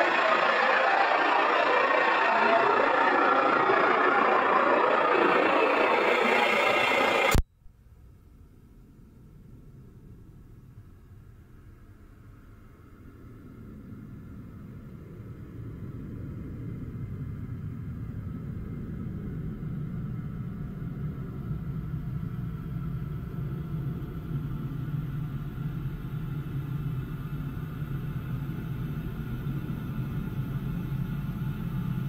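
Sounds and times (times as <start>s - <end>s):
low electronic drone: 0.0s - 7.4s
steady low hum: 0.0s - 7.4s.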